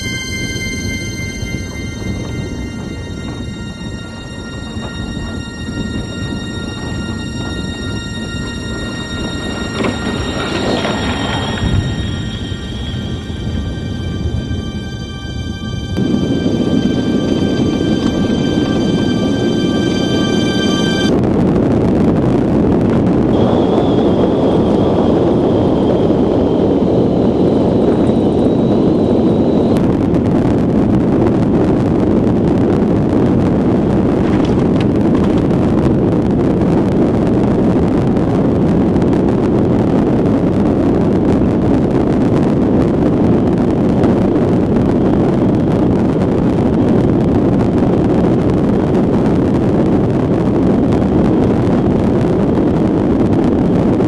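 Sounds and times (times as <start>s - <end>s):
wind on microphone: 0.0s - 54.0s
iceboat runners on ice: 3.2s - 12.8s, 31.8s - 40.3s.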